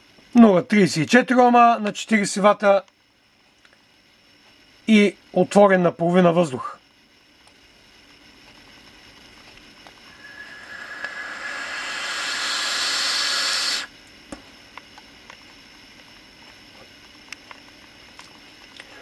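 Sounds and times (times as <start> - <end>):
vape hiss of air and vapour: 8.2 - 14.0.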